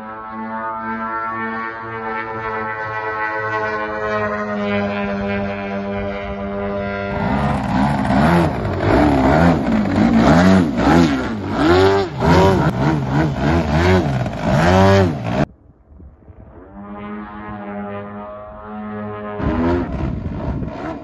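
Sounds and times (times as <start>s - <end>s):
droning music: 0.0s - 15.5s
model plane engine revving: 0.1s - 15.5s, 16.9s - 21.0s.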